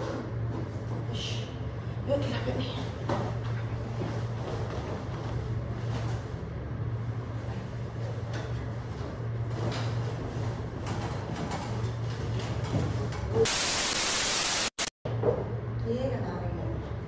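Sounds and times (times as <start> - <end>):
static hiss burst: 13.5 - 14.9.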